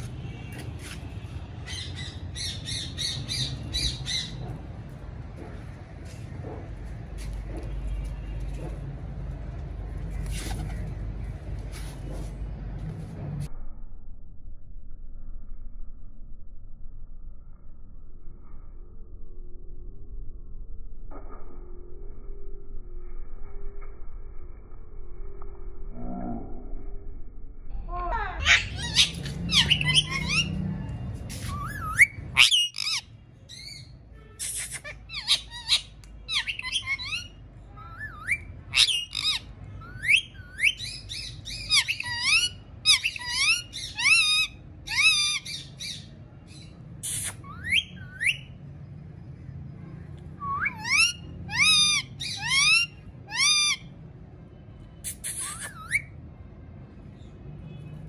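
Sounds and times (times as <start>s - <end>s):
parakeet calling: 28.2s - 30.6s, 31.5s - 33.9s, 34.7s - 46.1s, 50.5s - 53.9s.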